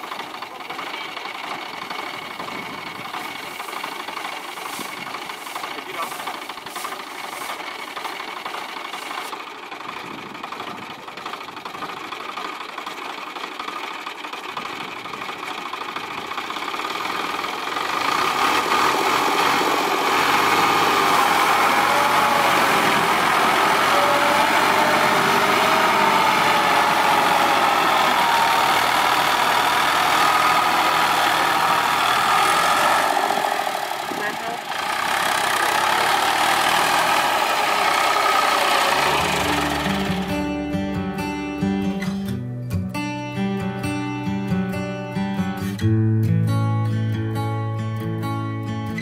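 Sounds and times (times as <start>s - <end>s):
tractor diesel engine revving: 0.0s - 42.0s.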